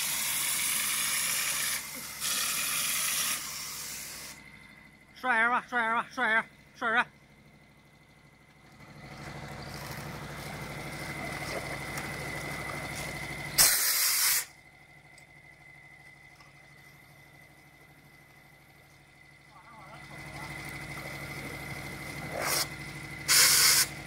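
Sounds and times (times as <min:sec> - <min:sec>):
loud blast of air: 0:00.0 - 0:04.4, 0:13.6 - 0:14.5, 0:22.4 - 0:24.0
low hum: 0:01.2 - 0:13.8, 0:14.4 - 0:24.0
air spray gun hissing: 0:13.6 - 0:14.5, 0:23.3 - 0:24.0.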